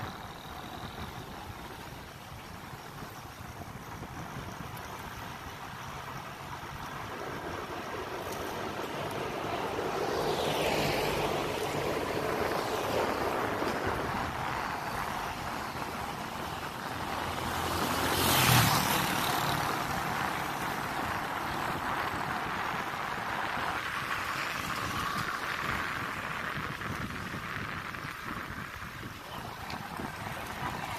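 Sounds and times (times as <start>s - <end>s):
cars driving by: 0.0s - 30.9s.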